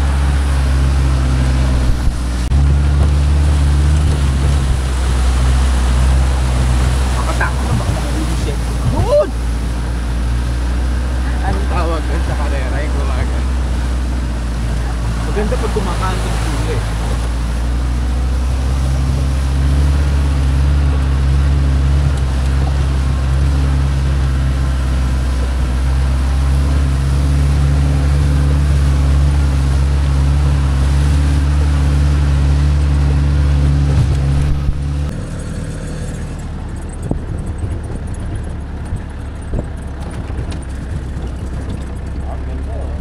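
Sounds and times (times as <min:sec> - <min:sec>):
jeep engine running: 0:00.0 - 0:43.0.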